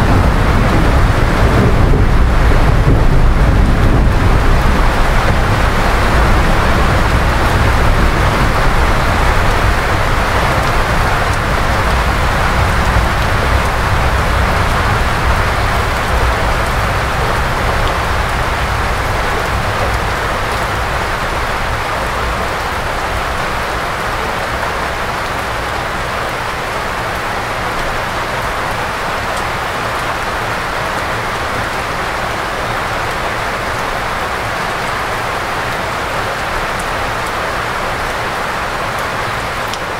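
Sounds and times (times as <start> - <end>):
low rumble: 0.0 - 22.4
heavy rain falling: 0.0 - 39.9.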